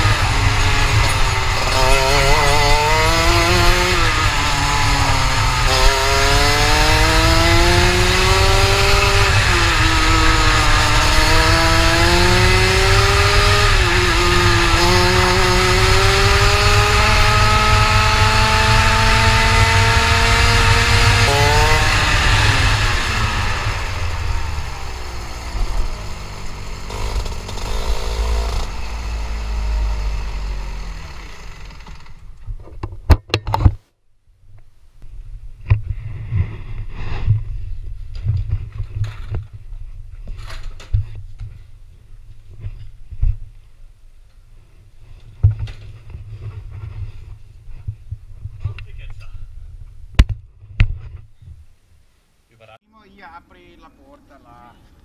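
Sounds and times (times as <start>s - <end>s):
kart engine revving: 0.0s - 32.4s.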